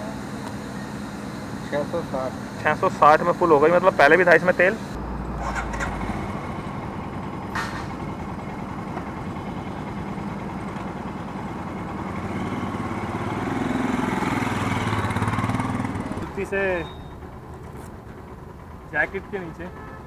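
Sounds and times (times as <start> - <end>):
motorcycle engine idling: 5.6 - 20.0.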